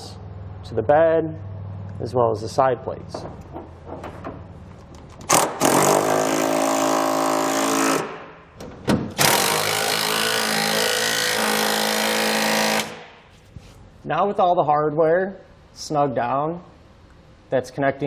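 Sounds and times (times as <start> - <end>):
cordless power tool running: 9.2 - 13.0.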